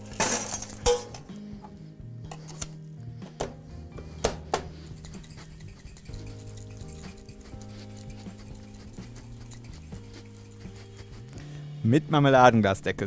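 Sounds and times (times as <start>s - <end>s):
glass and metal clinking: 0.0s - 1.3s
quiet background music: 0.0s - 13.0s.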